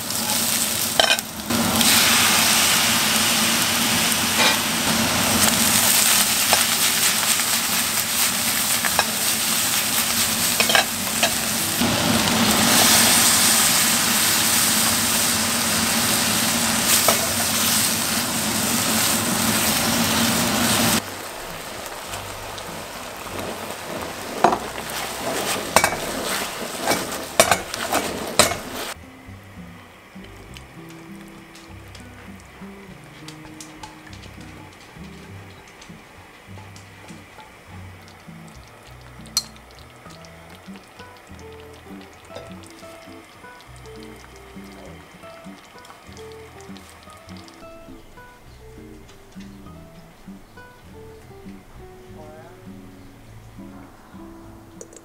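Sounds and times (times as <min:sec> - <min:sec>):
vegetables sizzling in a pan: 0:00.0 - 0:29.0, 0:29.9 - 0:51.5
spatula scraping a pan: 0:23.3 - 0:29.0.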